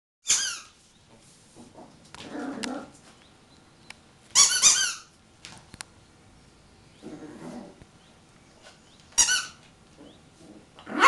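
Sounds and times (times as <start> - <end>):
rubber squeaky toy squeaking: 0.2 - 0.7, 4.4 - 5.1, 9.2 - 9.6.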